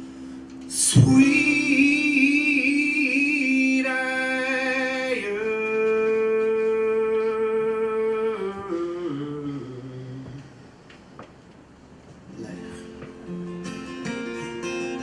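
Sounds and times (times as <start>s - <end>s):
acoustic guitar chord: 0.0s - 5.6s, 12.5s - 15.0s
man singing long notes: 0.7s - 10.6s.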